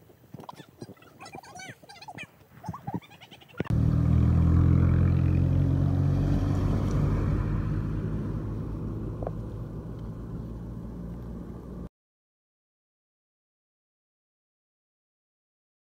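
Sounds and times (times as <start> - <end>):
vehicle engine running: 3.7 - 11.9.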